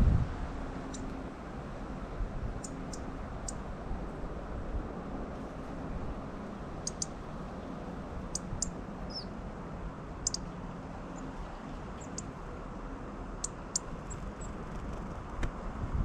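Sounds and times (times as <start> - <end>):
low background noise: 0.0 - 16.0
songbirds high thin calls: 0.8 - 1.2, 2.5 - 3.7, 6.7 - 7.4, 8.2 - 9.4, 10.2 - 12.4, 13.4 - 14.6.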